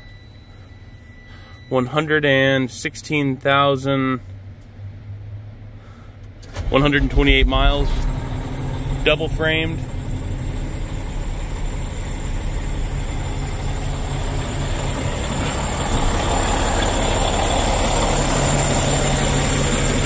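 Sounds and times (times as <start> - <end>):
diesel truck engine idling: 5.8 - 20.0.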